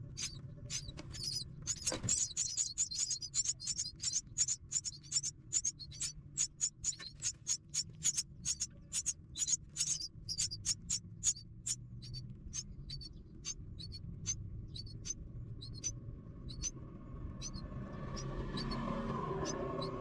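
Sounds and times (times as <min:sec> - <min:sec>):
nestlings chirping: 0:00.0 - 0:16.8, 0:17.4 - 0:20.0
faint low rumble: 0:00.0 - 0:20.0.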